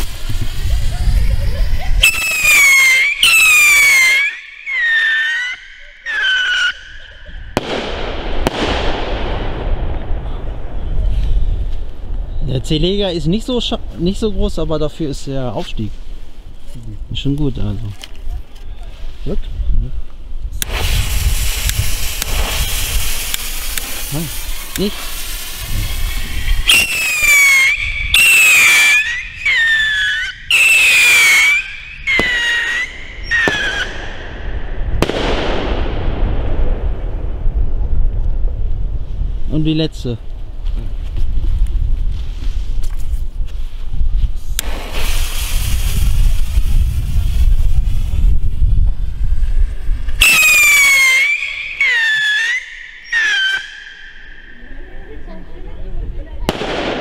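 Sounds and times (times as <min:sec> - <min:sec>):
firework rocket whistling: 0:00.0 - 0:10.1, 0:20.6 - 0:35.8, 0:44.5 - 0:55.4
firework bangs: 0:00.0 - 0:12.2, 0:20.6 - 0:38.6, 0:44.6 - 0:55.4, 0:56.3 - 0:57.0
crackling hiss: 0:00.0 - 0:57.0
fuse sparking: 0:20.6 - 0:33.9.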